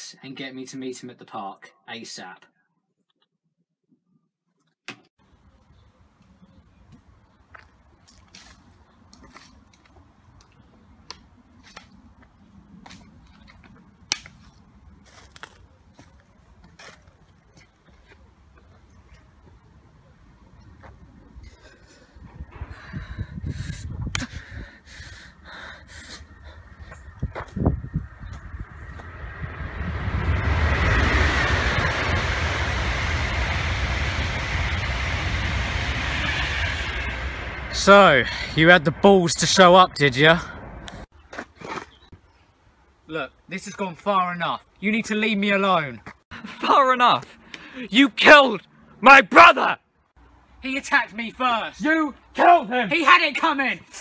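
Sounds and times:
low steady rumble: 21.8 - 41.1.

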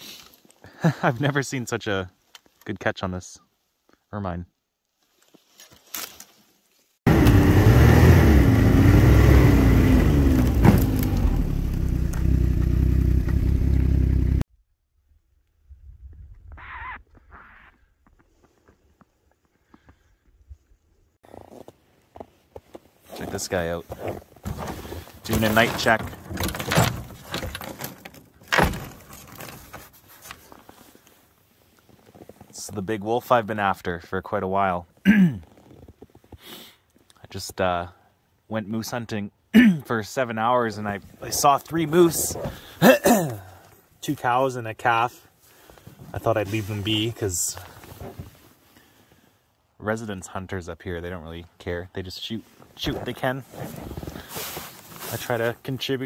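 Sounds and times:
snowmobile engine running: 7.1 - 14.4.

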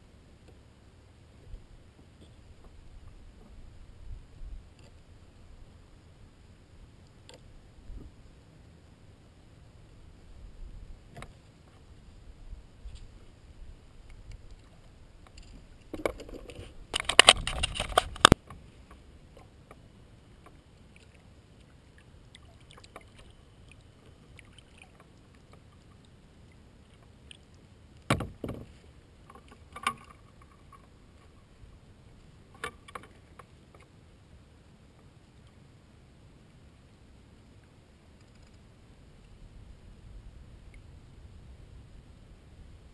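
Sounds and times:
quiet water: 0.0 - 42.9
single knocks on kayak: 28.1 - 28.7
kayak splashing and knocking: 28.1 - 30.7.

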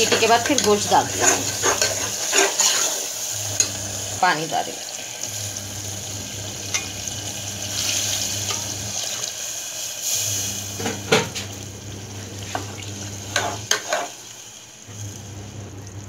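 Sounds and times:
sizzling in a hot pan: 0.0 - 16.0
water pouring into a pot: 3.0 - 16.0.

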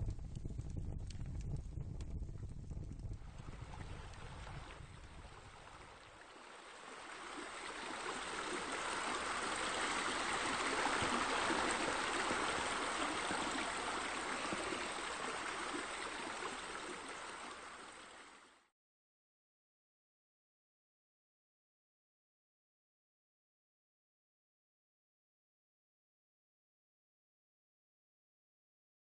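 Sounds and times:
running splashing water: 3.2 - 18.6.

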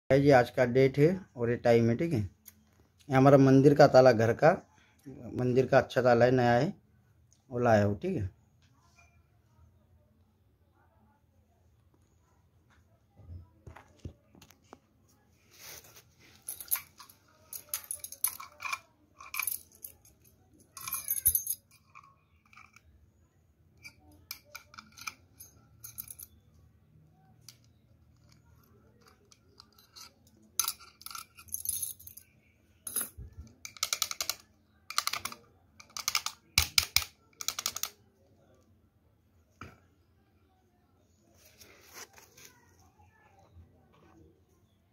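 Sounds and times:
keys and padlock jingling: 16.3 - 22.8, 23.8 - 26.4, 27.6 - 37.9.

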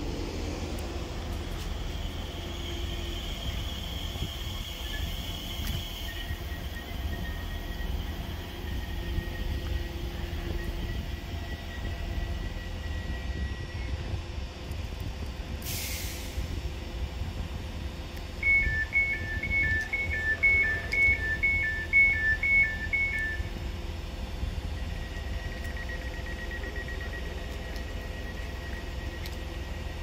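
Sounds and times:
electric train hum and rumble: 0.0 - 30.0
two-tone door warning beeping: 3.4 - 14.0, 18.4 - 23.6, 24.5 - 30.0
short hiss: 15.6 - 16.5.

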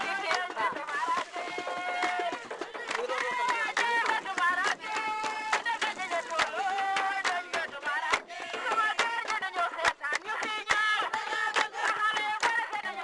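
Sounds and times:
sharp percussive beat: 0.0 - 12.7
people singing: 0.0 - 13.0.

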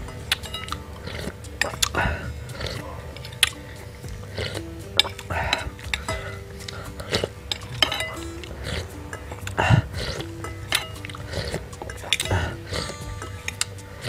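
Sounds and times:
soft background music: 0.0 - 14.0
slurping broth from a spoon: 3.4 - 14.0.

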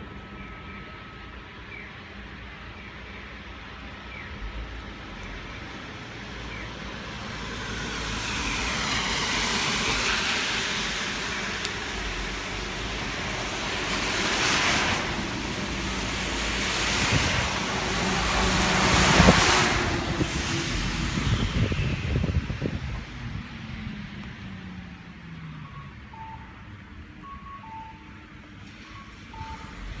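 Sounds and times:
car tyres hissing on wet road: 6.8 - 23.0.

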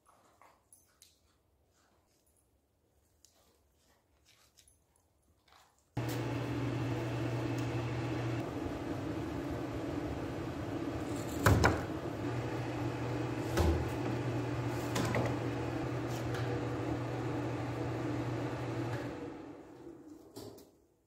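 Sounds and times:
machine electrical hum: 6.0 - 20.0.

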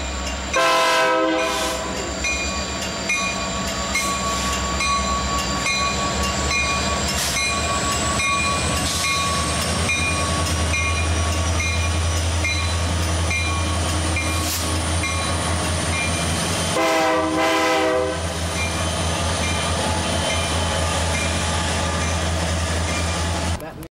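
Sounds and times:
locomotive engine rumble: 0.0 - 23.9
train horn blast: 0.6 - 2.0, 16.7 - 18.3.

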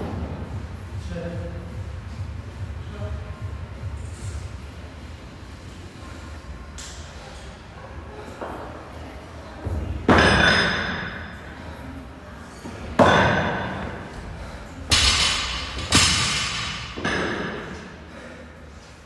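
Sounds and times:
metallic clangs from gym equipment: 10.1 - 11.4, 13.0 - 14.0, 14.9 - 17.9.

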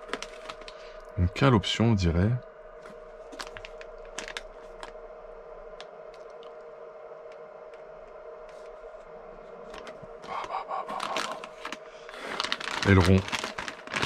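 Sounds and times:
plastic bags crinkling: 0.0 - 1.0, 3.2 - 5.0, 9.7 - 14.0
faint steady hum: 0.0 - 14.0.

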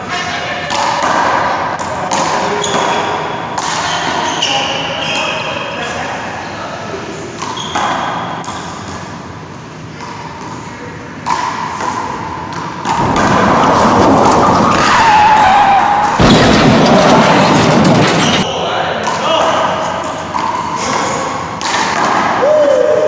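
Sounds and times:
loud steady wavering noise: 8.2 - 21.6.

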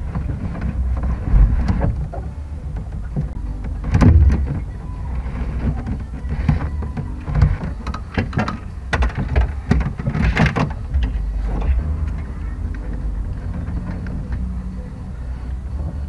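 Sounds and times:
clicks and rustles of hoses: 0.0 - 16.0
low rumble: 0.0 - 16.0.

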